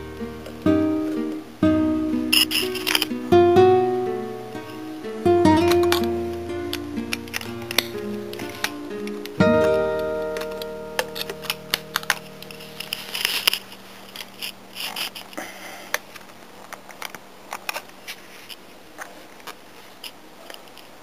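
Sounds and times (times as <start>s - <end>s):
strummed guitar chord: 0.0s - 13.3s.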